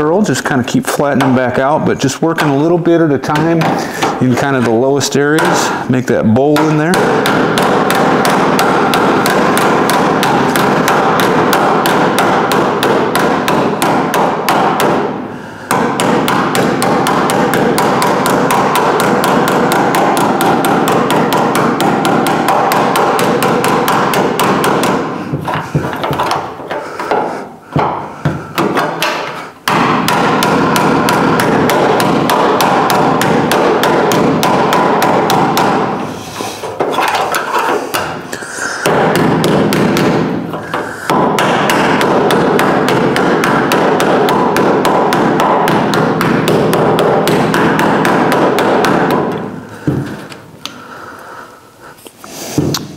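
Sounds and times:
hammer tapping on ringing sheet metal: 0:06.4 - 0:36.0, 0:38.8 - 0:50.0.

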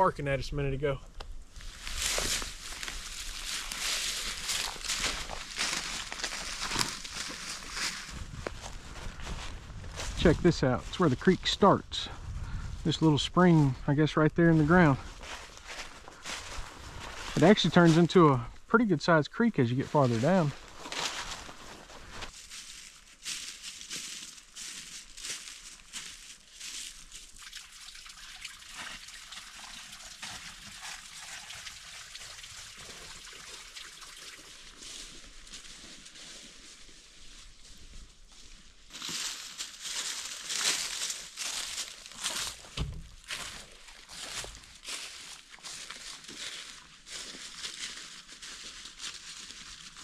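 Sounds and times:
rustling and crunching: 0:01.5 - 0:11.0, 0:14.8 - 0:18.2, 0:20.0 - 0:27.4, 0:34.6 - 0:50.0
creek trickling: 0:01.6 - 0:09.1, 0:24.1 - 0:36.4, 0:43.2 - 0:50.0.

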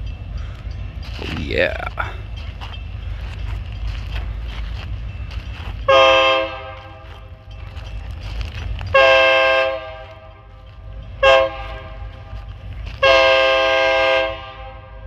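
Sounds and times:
locomotive horn blasts: 0:05.8 - 0:07.3, 0:08.9 - 0:10.6, 0:11.2 - 0:12.4, 0:13.0 - 0:15.0.

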